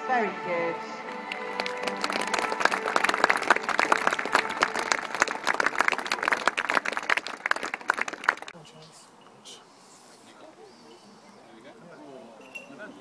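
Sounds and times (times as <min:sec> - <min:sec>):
audience applauding: 0:01.1 - 0:08.6.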